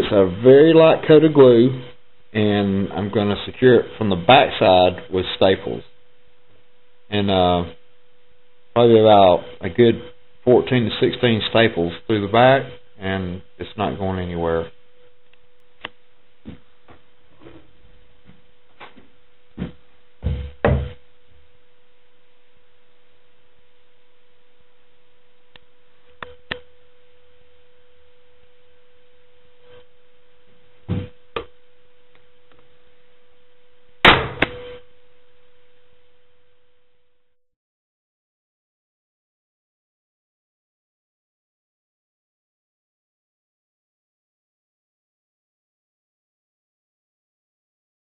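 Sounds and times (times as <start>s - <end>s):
steady hum: 0.0s - 37.4s
wooden object knocking on workbench: 19.6s - 21.0s.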